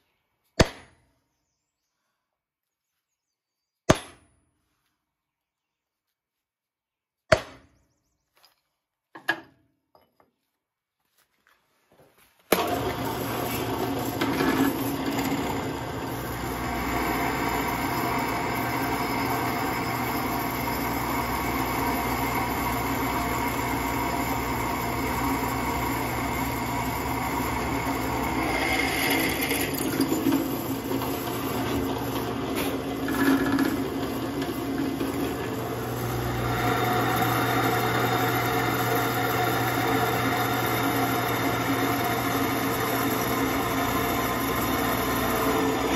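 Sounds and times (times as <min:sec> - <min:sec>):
hammer striking center punch: 0:03.9 - 0:04.3, 0:07.3 - 0:07.7
drill press cutting steel: 0:12.5 - 0:45.9.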